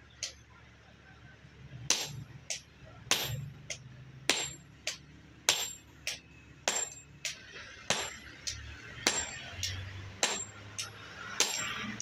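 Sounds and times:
hammer striking tool on anvil: 0:01.9 - 0:12.0.

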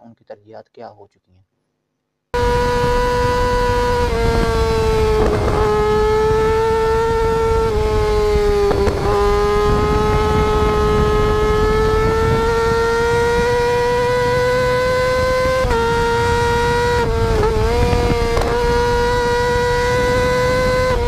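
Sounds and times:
motorcycle engines at high revs: 0:02.4 - 0:21.0.

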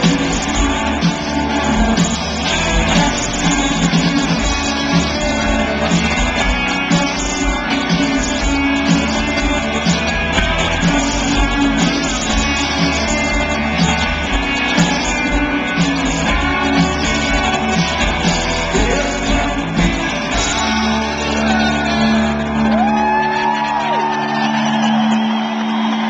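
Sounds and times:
drums beating: 0:00.0 - 0:26.0
live rock band: 0:00.0 - 0:26.0
people shouting and whooping: 0:17.6 - 0:26.0.

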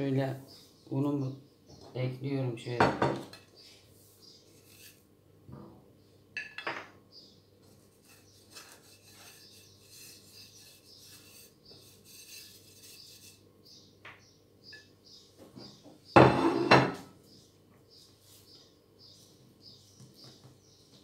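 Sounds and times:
fingers scraping flour off plate: 0:04.3 - 0:05.0, 0:07.6 - 0:13.4.

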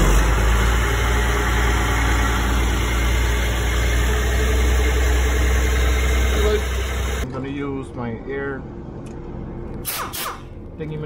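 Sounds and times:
truck diesel engine running: 0:00.0 - 0:07.3.

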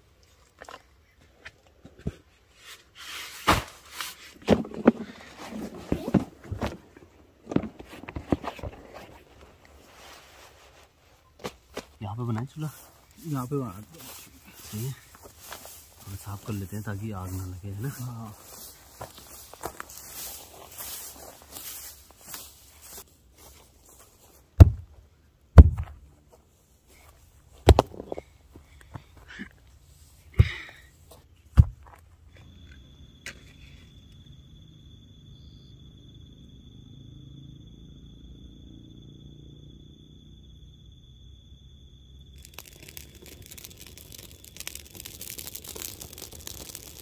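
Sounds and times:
crackling and crinkling: 0:00.0 - 0:24.2, 0:42.4 - 0:47.0
crickets chirping: 0:00.0 - 0:47.0
heavy thuds on the ground: 0:24.6 - 0:25.0, 0:25.6 - 0:26.0, 0:31.5 - 0:32.0.

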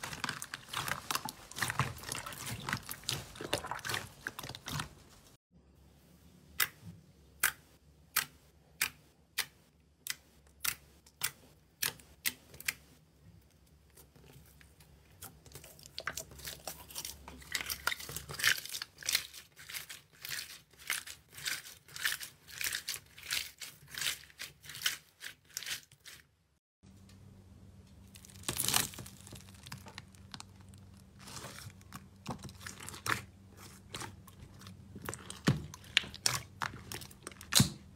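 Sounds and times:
slime popping and crackling: 0:00.0 - 0:04.9, 0:28.1 - 0:33.2.

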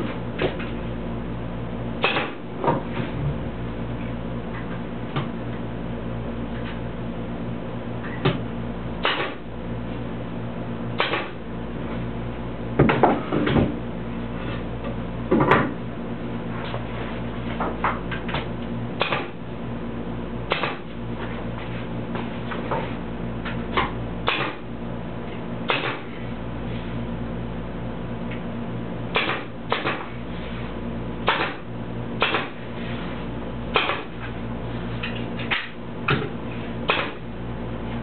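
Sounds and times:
steady hum: 0:00.0 - 0:38.0
pneumatic nail gun firing: 0:02.0 - 0:02.4, 0:09.0 - 0:09.4, 0:11.0 - 0:11.4, 0:19.0 - 0:19.4, 0:20.5 - 0:20.9, 0:24.2 - 0:24.6, 0:25.7 - 0:26.2, 0:29.1 - 0:30.2, 0:31.2 - 0:32.6, 0:33.7 - 0:34.2, 0:36.9 - 0:37.2.

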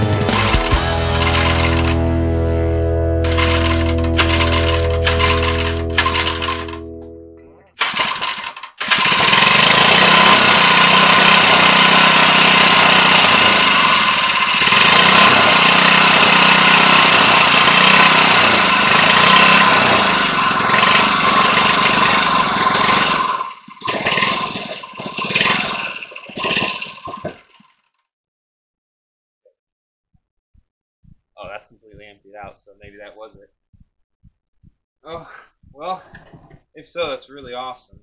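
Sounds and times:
small petrol engine running: 0:00.0 - 0:02.1, 0:03.2 - 0:07.0, 0:07.8 - 0:27.9
short uneven noises: 0:03.2 - 0:06.8.

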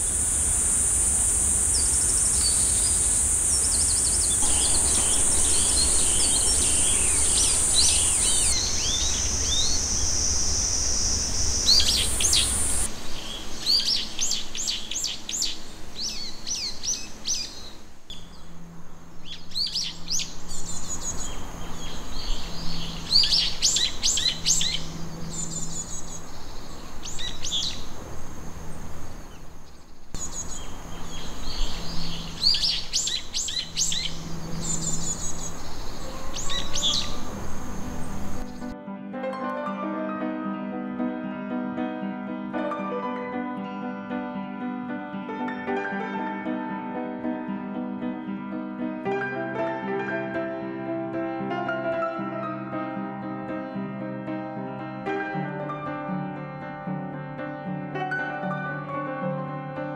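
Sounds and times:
cicada drone: 0:00.0 - 0:38.8
songbirds chirping: 0:00.0 - 0:38.8.

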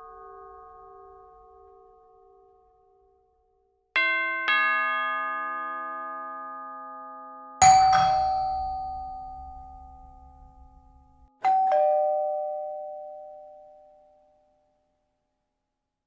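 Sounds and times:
doorbell ding-dong: 0:07.6 - 0:14.5.

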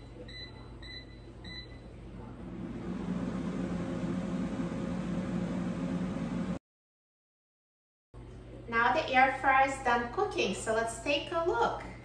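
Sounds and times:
air fryer beeps: 0:00.0 - 0:02.0
air fryer fan running: 0:02.2 - 0:06.6.

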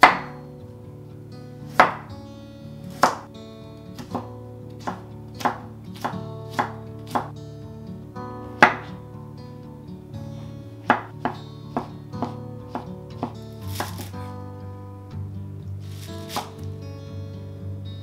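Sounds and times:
soft background music: 0:00.0 - 0:18.0
knife chopping on wooden board: 0:01.8 - 0:02.0, 0:03.0 - 0:03.2, 0:04.8 - 0:07.3, 0:08.6 - 0:08.9, 0:10.9 - 0:14.1, 0:16.3 - 0:16.5.

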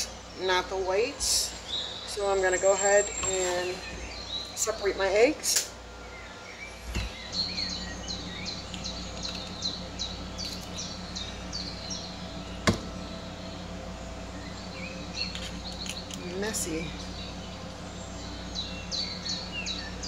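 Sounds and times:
small bird chirping: 0:06.1 - 0:20.0.

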